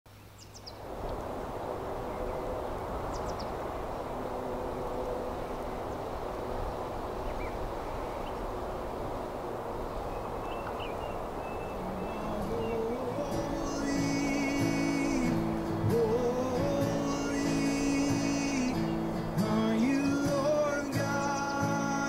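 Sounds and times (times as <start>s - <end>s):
faint bird chirps: 10.0s - 15.6s, 20.5s - 22.0s.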